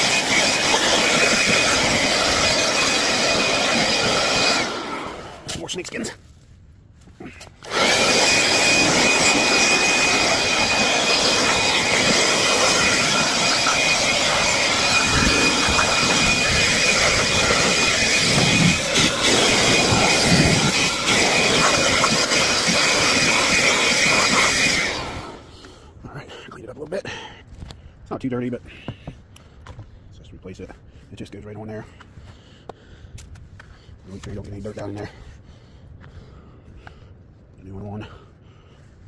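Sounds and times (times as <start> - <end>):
leaf blower whining: 0.0 - 6.1, 7.2 - 25.8.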